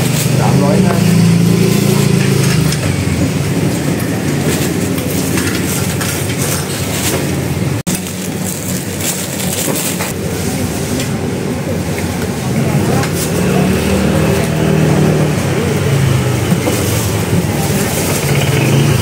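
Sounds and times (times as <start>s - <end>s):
clattering and rustling: 2.0s - 10.2s.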